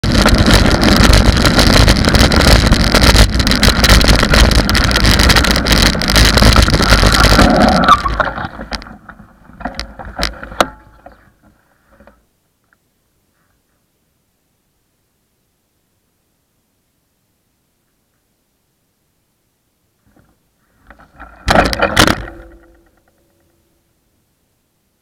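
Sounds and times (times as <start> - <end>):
wind rush: 0.0 - 8.7
road rumble: 0.0 - 11.6.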